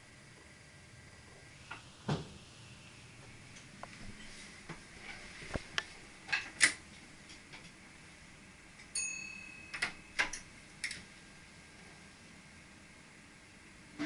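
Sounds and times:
bell-like ding: 9.0s - 10.2s.

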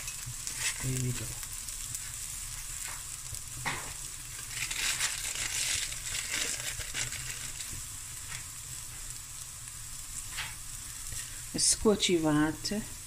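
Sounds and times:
vegetables sizzling in pot: 0.0s - 13.0s
plastic bag crinkling: 4.4s - 7.7s.

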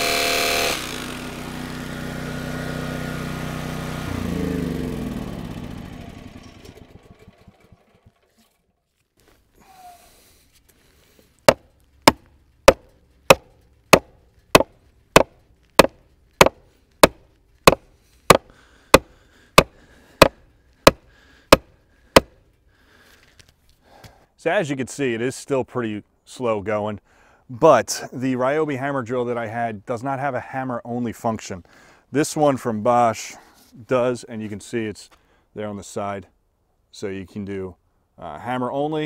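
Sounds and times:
generator engine spinning down: 0.0s - 8.7s
sledgehammer striking steel rebar: 11.4s - 22.4s.

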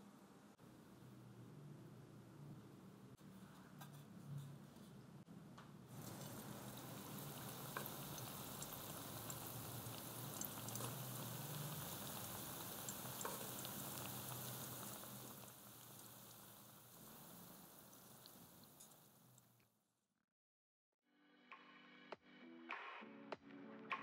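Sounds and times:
oil sizzling with pops: 5.9s - 19.8s.

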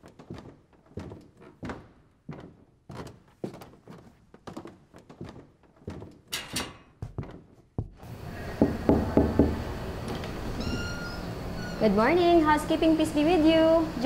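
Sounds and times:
knuckles knocking on wooden door: 8.6s - 9.6s.

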